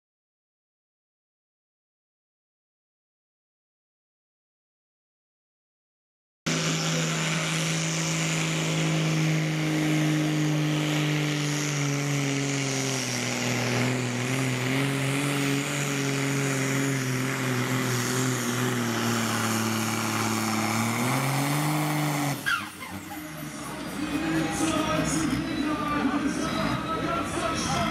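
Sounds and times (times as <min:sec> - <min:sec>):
tractor diesel engine straining: 0:06.5 - 0:27.9.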